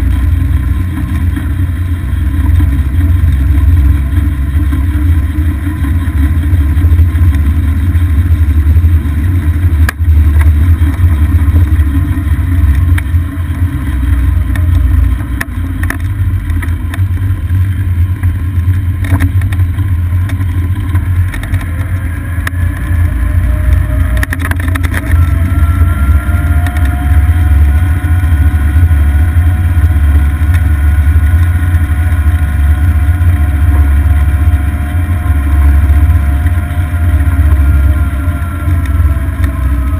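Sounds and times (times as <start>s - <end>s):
faint motor whine: 0.0s - 39.9s
wind and road noise rumble: 0.0s - 39.9s.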